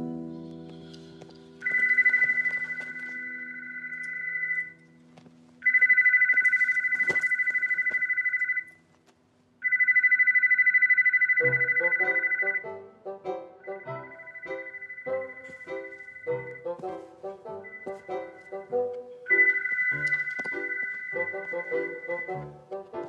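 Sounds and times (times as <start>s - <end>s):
background music: 0.0s - 5.8s, 11.3s - 23.0s
telephone ringing two-tone trill: 1.6s - 4.8s, 5.6s - 8.8s, 9.6s - 12.8s, 13.6s - 16.8s, 19.3s - 22.6s.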